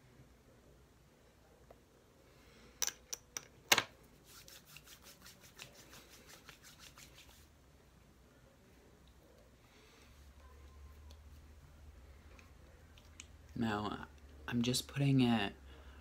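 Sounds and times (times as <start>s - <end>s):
hands patting and rubbing face: 4.2s - 7.5s.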